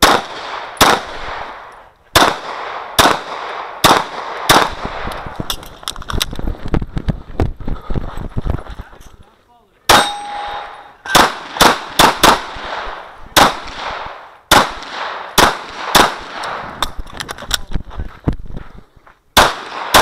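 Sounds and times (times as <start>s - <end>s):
handgun shots: 2.2s - 5.2s, 9.9s - 17.0s, 19.4s - 20.0s
metallic ringing of steel target: 9.9s - 11.3s.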